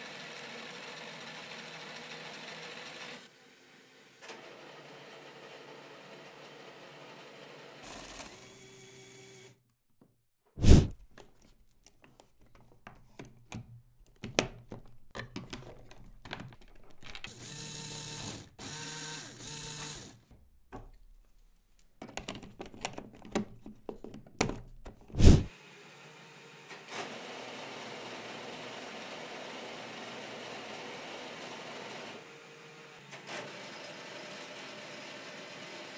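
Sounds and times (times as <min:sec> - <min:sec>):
plastic parts clicking: 0:11.1 - 0:17.4
electric motor whirring: 0:17.3 - 0:20.1.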